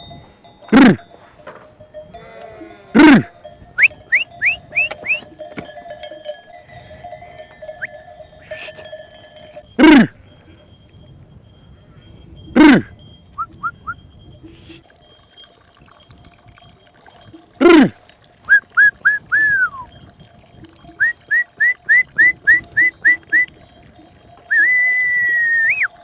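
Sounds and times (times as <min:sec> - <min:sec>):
person whistling chirps: 0:03.8 - 0:05.3, 0:13.4 - 0:14.0, 0:18.5 - 0:19.9, 0:21.0 - 0:23.5, 0:24.5 - 0:25.9
long rising whistle: 0:24.5 - 0:25.9.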